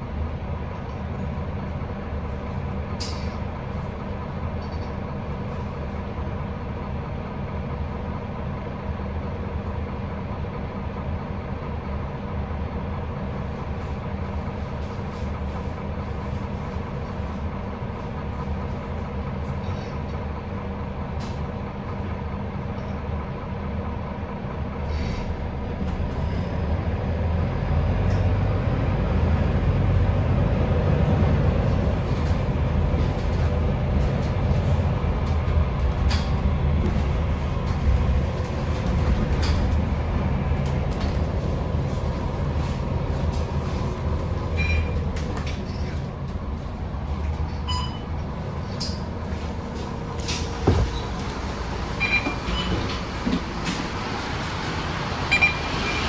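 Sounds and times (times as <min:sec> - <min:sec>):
bus engine rumble: 0:00.0 - 0:56.0
road noise: 0:00.0 - 0:56.0
interior rattles and clicks: 0:31.0 - 0:47.4.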